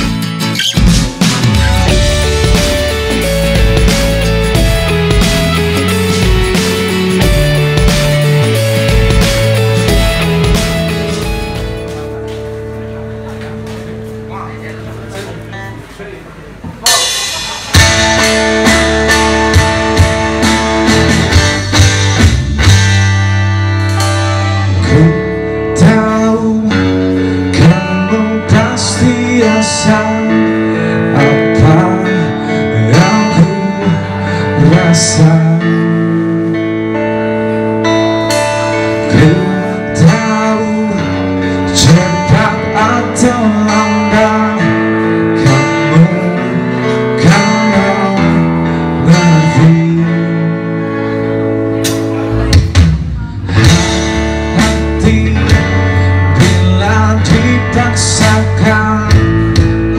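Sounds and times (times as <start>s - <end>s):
live pop-rock band: 0.0s - 59.9s
man singing into a microphone: 24.7s - 37.0s, 38.7s - 51.4s, 52.1s - 59.9s.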